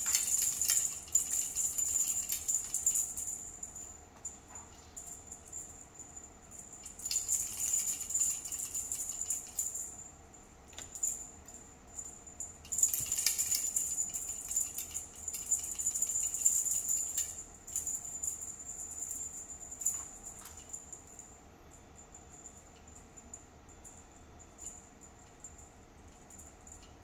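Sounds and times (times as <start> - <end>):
cat toy rattling and jingling: 0.0 - 10.1, 10.7 - 21.3.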